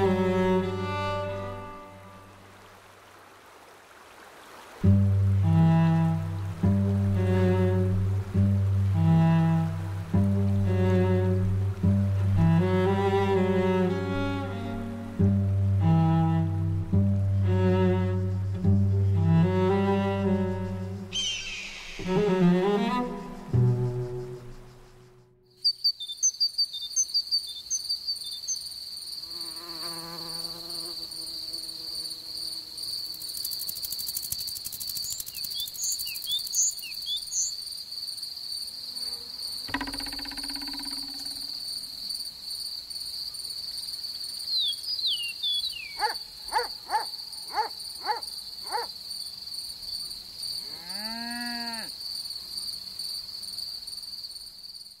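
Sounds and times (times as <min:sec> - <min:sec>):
crickets chirring: 0:00.0 - 0:03.4, 0:15.9 - 0:55.0
bird chirps: 0:21.1 - 0:22.2, 0:22.9 - 0:28.6, 0:34.9 - 0:37.6, 0:44.5 - 0:48.9
brief animal calls: 0:46.0 - 0:48.9.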